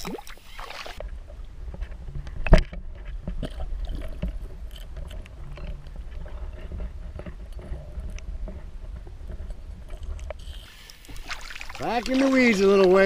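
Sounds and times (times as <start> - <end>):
muffled water rumble: 1.0 - 10.4.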